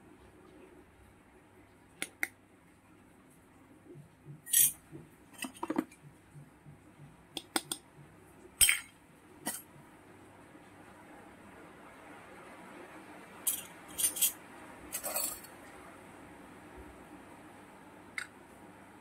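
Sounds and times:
toy metal utensils clinking: 0:04.5 - 0:04.8, 0:13.5 - 0:15.6.

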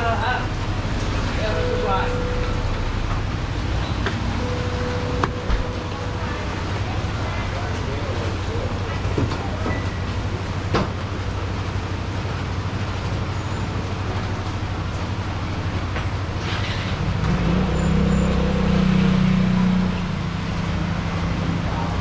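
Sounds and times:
low drone: 0:00.0 - 0:10.6
vehicle noise rumble: 0:00.0 - 0:22.0.

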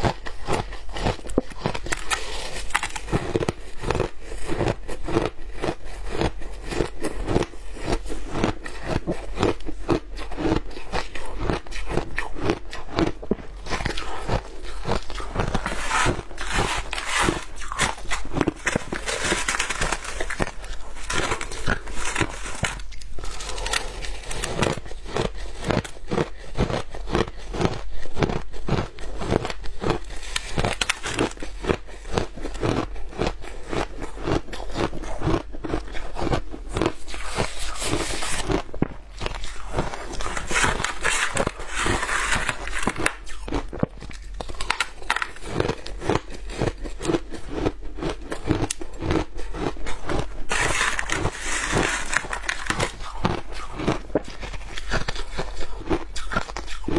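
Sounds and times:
shaved ice crunching: 0:13.7 - 0:25.5, 0:39.2 - 0:43.6, 0:48.6 - 0:56.8
ice grains rustling: 0:39.7 - 0:43.1, 0:50.5 - 0:53.4.

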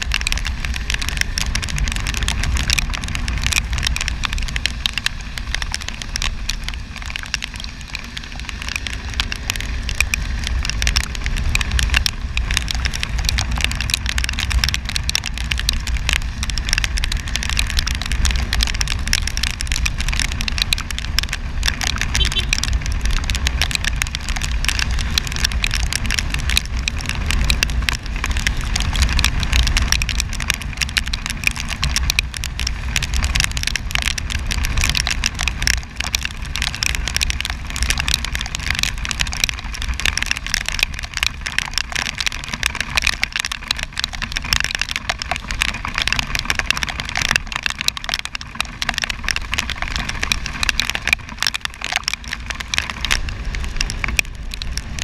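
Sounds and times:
raindrops crackling on microphone: 0:00.0 - 0:55.0
wind rumble on microphone: 0:00.0 - 0:55.0.

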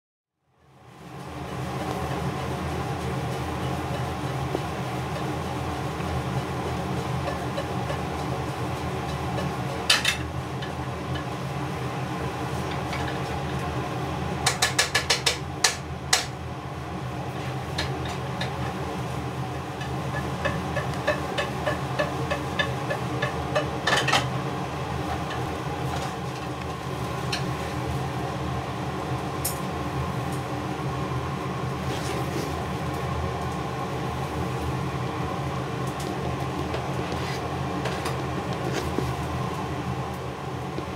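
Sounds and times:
steady background hum: 0:00.4 - 0:40.9.

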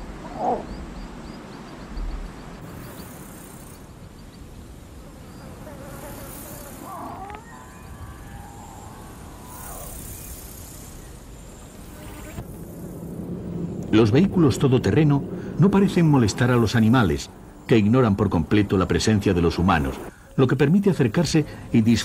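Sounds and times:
insects buzzing: 0:00.0 - 0:22.0
high hissing: 0:04.6 - 0:22.0.

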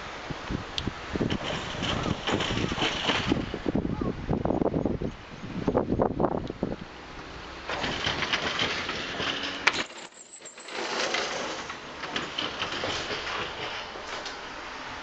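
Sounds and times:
sliding door rattling on track: 0:01.2 - 0:03.7, 0:07.3 - 0:15.0
sharp door clack: 0:10.7 - 0:14.5.

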